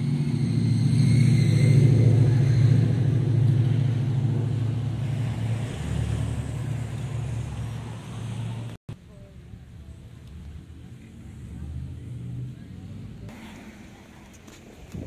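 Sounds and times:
motor engine droning: 0.0s - 8.8s.

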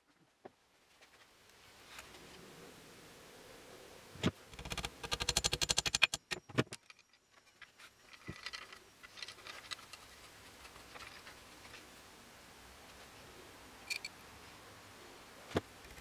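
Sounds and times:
rapid rattle of clicks: 4.5s - 6.4s.

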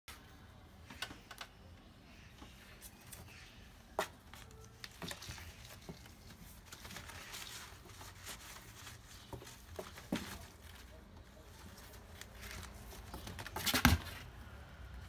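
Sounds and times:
paper rustling: 2.7s - 14.2s.

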